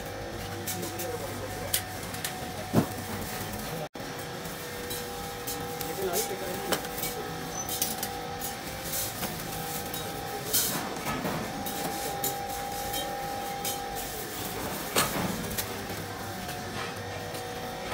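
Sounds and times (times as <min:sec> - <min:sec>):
metal utensils clinking: 0:04.8 - 0:17.4.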